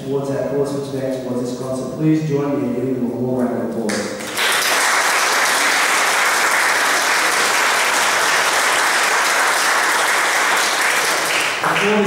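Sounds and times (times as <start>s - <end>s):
audience applause: 4.2s - 12.0s.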